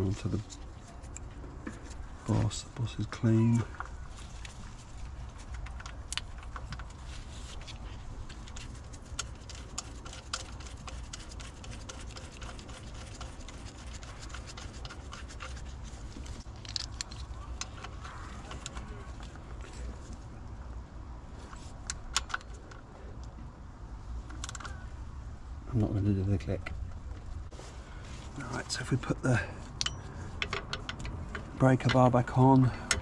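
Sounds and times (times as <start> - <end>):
metallic clicks taps and scrapes: 8.4 - 19.4, 21.5 - 23.4, 24.2 - 24.8, 29.7 - 33.0.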